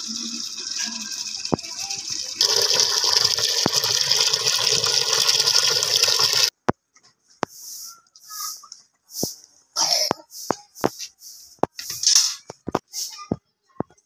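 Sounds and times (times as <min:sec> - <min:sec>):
tap water pouring into metal bucket: 0:00.0 - 0:06.5.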